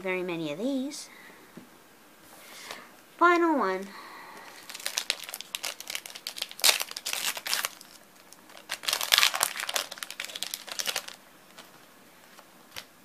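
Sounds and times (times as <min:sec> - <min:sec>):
foil wrapper crinkling: 0:04.3 - 0:13.0.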